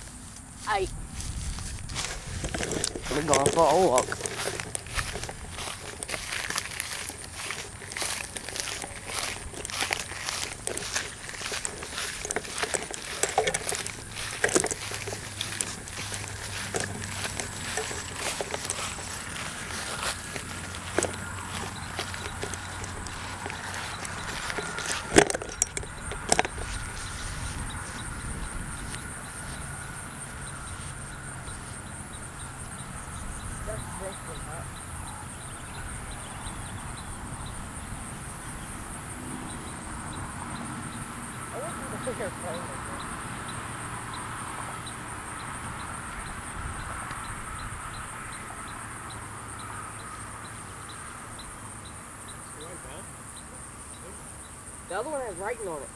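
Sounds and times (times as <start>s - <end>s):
faint footsteps on grass: 0.0s - 34.8s
knocks and rubbing on microphone: 1.3s - 29.0s.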